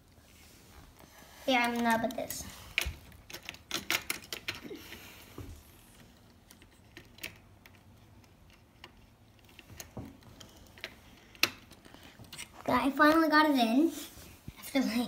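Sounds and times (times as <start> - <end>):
plastic toy bricks clicking: 2.8 - 4.7.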